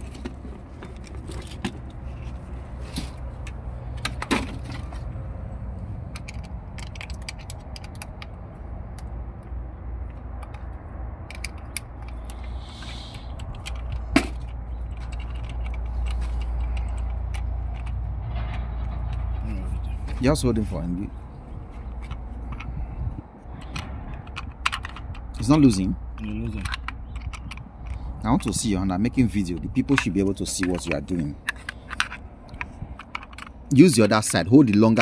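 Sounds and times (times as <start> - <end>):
steady low rumble: 0.0 - 33.8
metal parts and tools clinking: 6.0 - 8.4, 10.1 - 20.7, 23.5 - 35.0.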